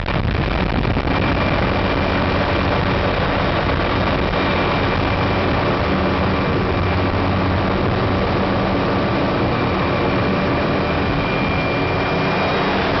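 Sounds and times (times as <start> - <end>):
helicopter engine and rotor drone: 0.0 - 13.0
high whine: 0.0 - 13.0.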